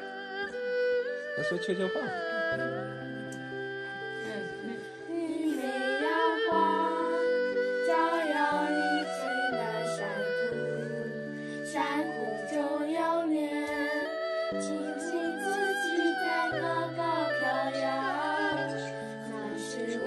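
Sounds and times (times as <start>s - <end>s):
backing music of sustained chords: 0.0s - 20.0s
girls singing together: 4.2s - 20.0s.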